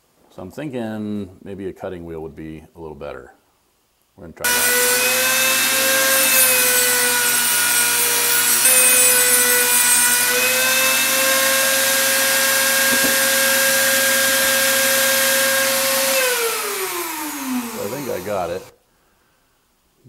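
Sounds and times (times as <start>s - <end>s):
rotary tool cutting metal: 4.5s - 18.7s.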